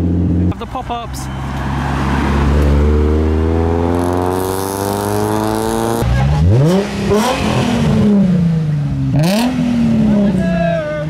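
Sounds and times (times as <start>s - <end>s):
car engine revving hard: 1.8s - 10.4s.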